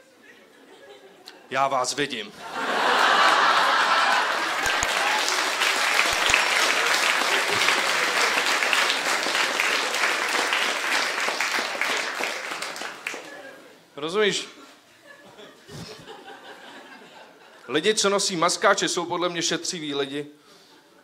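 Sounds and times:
audience applauding: 0:02.6 - 0:13.5.

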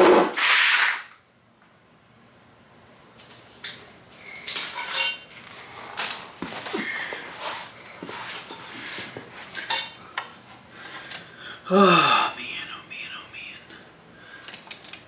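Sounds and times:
scooter parts clinking and knocking: 0:04.4 - 0:05.3, 0:09.6 - 0:10.0.

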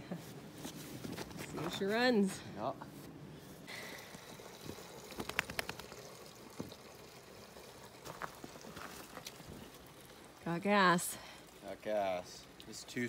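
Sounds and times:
fuel pouring into tank: 0:03.7 - 0:12.8.

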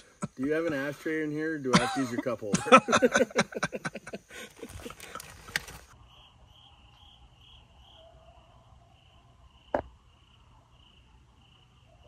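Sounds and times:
night insects chirping: 0:00.0 - 0:12.0
man laughing: 0:01.7 - 0:05.0.

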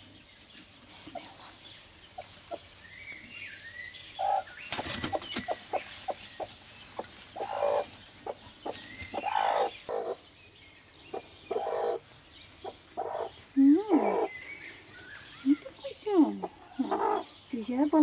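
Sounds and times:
clicks and scrapes of straw: 0:00.0 - 0:03.2, 0:04.0 - 0:09.5
straw rustling: 0:00.0 - 0:10.2, 0:11.5 - 0:16.9
hen clucking: 0:01.8 - 0:02.8, 0:04.0 - 0:10.4, 0:11.1 - 0:18.0.

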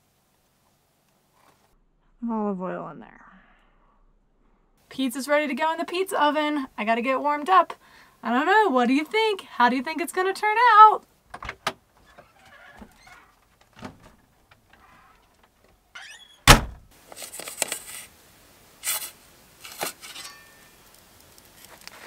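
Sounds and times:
loud thunk: 0:16.4 - 0:16.9
pizza peel scraping: 0:18.8 - 0:22.0.

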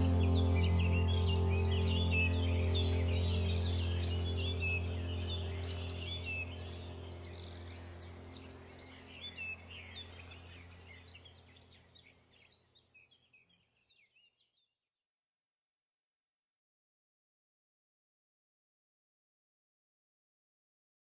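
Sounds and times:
steady low drone: 0:00.0 - 0:11.7
small birds chirping: 0:00.0 - 0:14.7.

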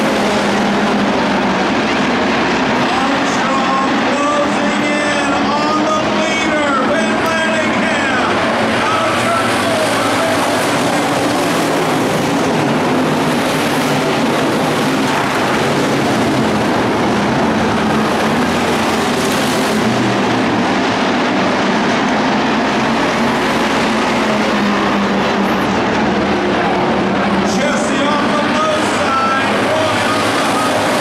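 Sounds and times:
race car engines running: 0:00.0 - 0:31.0.

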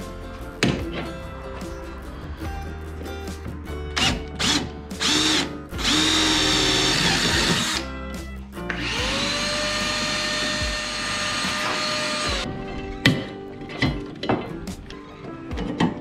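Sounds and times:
electric drill boring metal: 0:04.0 - 0:07.9, 0:08.7 - 0:12.5.

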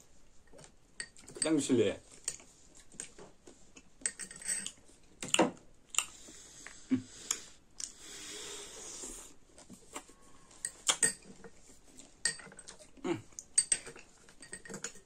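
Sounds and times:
cutlery clinking on glass bowls: 0:01.0 - 0:01.7, 0:04.0 - 0:04.8, 0:10.5 - 0:11.6, 0:12.2 - 0:12.8, 0:13.4 - 0:15.0.

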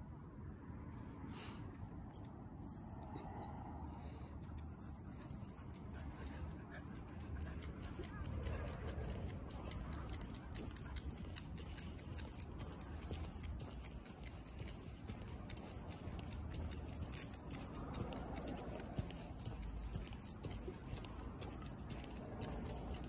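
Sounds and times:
steady low rumble: 0:00.0 - 0:23.0
dog paws pattering: 0:04.5 - 0:23.0
footsteps on asphalt: 0:09.8 - 0:23.0.

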